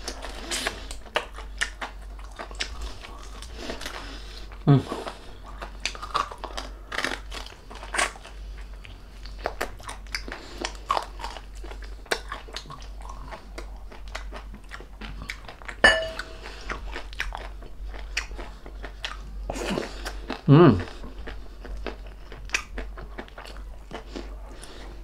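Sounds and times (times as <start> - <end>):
crunching and chewing crispy skin: 0.0 - 25.0
short ringing knock: 15.8 - 16.3.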